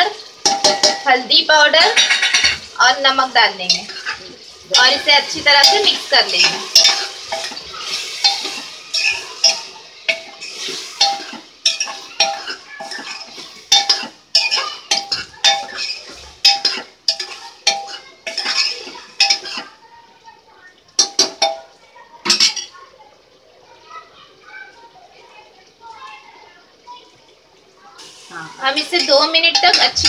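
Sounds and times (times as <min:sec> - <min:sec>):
faint sizzle: 0:00.0 - 0:30.0
metal ladle scraping a pot: 0:03.7 - 0:19.7.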